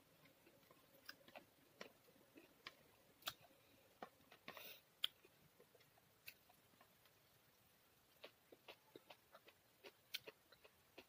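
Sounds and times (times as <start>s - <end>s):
eating with fingers: 8.1s - 11.0s.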